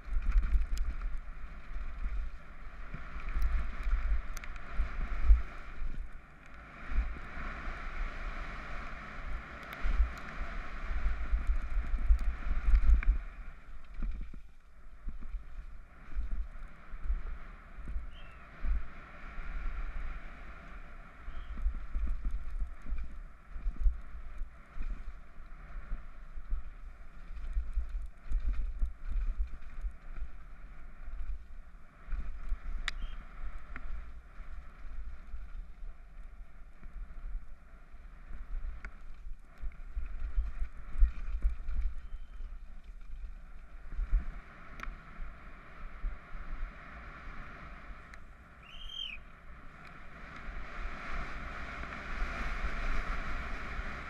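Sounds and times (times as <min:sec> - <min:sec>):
low rumble: 0:00.0 - 0:54.0
wind buffeting microphone: 0:00.0 - 0:54.0.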